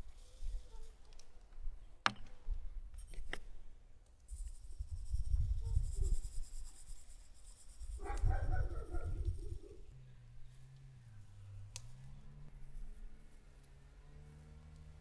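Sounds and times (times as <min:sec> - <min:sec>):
wind rumble on microphone: 0:04.3 - 0:06.7, 0:07.8 - 0:09.9.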